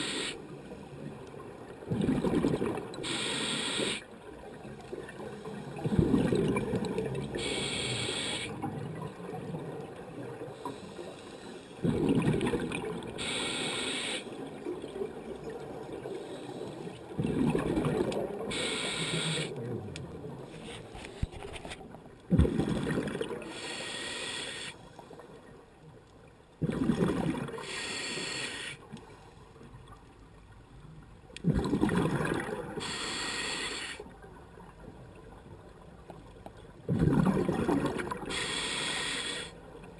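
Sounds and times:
regulator inhale hiss: 0:00.0 - 0:01.0, 0:03.0 - 0:04.1, 0:07.3 - 0:08.6, 0:10.6 - 0:11.8, 0:13.2 - 0:14.4, 0:16.1 - 0:17.0, 0:18.5 - 0:19.6, 0:23.4 - 0:25.1, 0:27.6 - 0:29.3, 0:32.8 - 0:34.1, 0:38.2 - 0:39.6
exhaled bubbles rushing: 0:01.9 - 0:03.0, 0:05.8 - 0:07.3, 0:11.8 - 0:13.2, 0:17.2 - 0:18.5, 0:22.3 - 0:23.4, 0:26.6 - 0:27.6, 0:31.4 - 0:32.8, 0:36.9 - 0:38.3.

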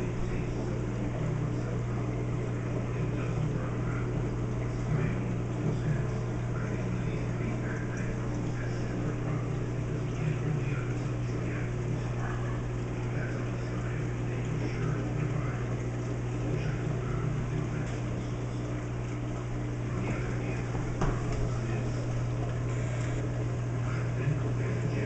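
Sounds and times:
aquarium equipment hum: 0:00.0 - 0:25.0.

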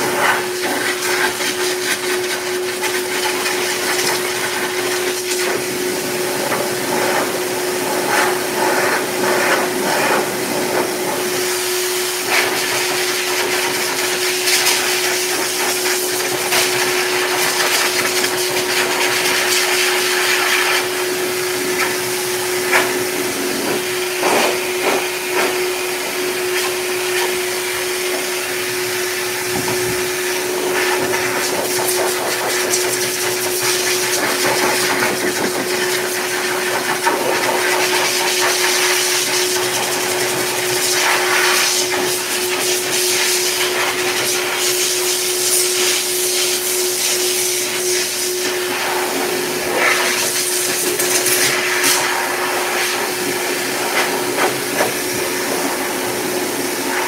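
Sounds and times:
dog dryer blowing air: 0:00.0 - 0:57.0
dryer hum: 0:00.0 - 0:57.0.

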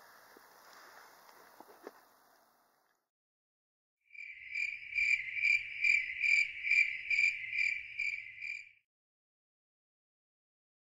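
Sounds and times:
cricket chirping: 0:04.1 - 0:08.8.

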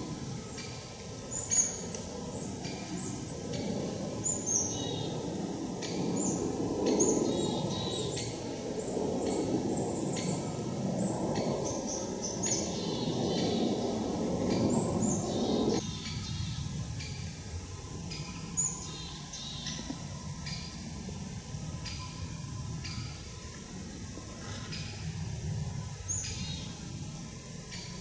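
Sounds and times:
small birds chirping: 0:00.0 - 0:17.4
steady low noise: 0:00.0 - 0:28.0.

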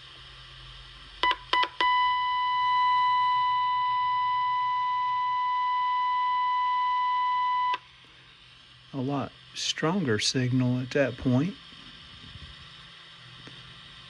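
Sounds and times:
radio test tone: 0:01.6 - 0:07.8.

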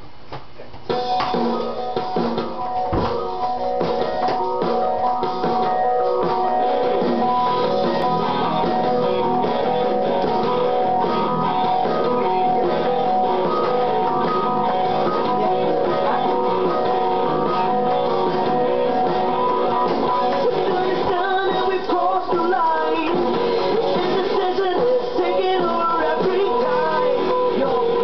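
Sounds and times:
drums: 0:00.0 - 0:28.0
strummed guitars: 0:00.9 - 0:28.0.

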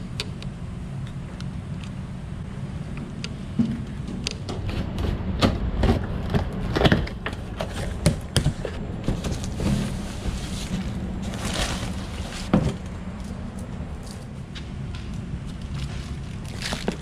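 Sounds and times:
steady low hum: 0:00.0 - 0:17.0
paper rustling: 0:07.6 - 0:12.6.

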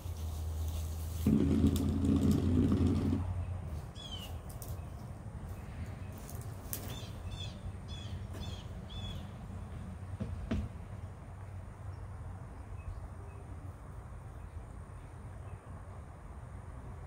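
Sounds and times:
low engine-like rumble: 0:00.0 - 0:17.0
bird chirping: 0:02.1 - 0:09.4.

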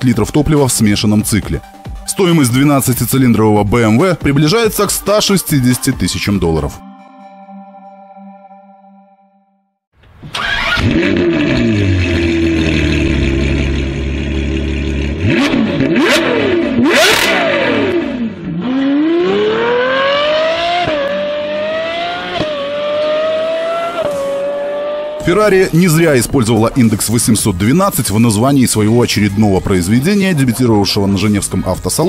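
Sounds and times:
car engine idling: 0:10.0 - 0:18.8
car engine revving: 0:10.2 - 0:25.8
car accelerating hard: 0:10.3 - 0:25.3.

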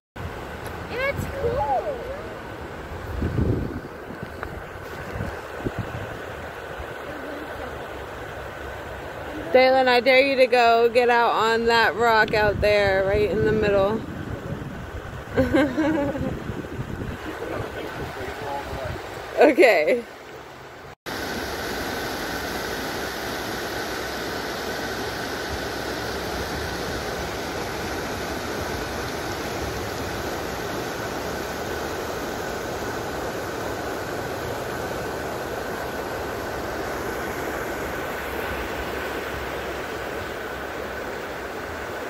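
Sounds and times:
river rapids rushing over rocks: 0:03.9 - 0:09.5.

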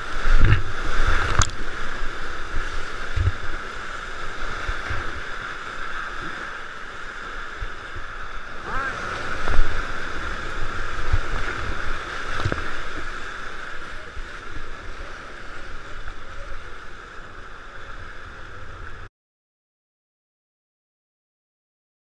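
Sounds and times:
whitewater rapids rushing: 0:00.0 - 0:19.0
water thumping against boat: 0:10.6 - 0:13.1.

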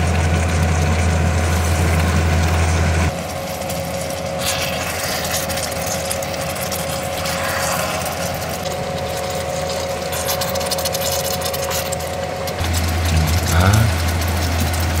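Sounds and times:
mechanical hum: 0:00.0 - 0:15.0
faint high whining tones: 0:04.3 - 0:14.2
rushing hiss: 0:06.9 - 0:10.4.

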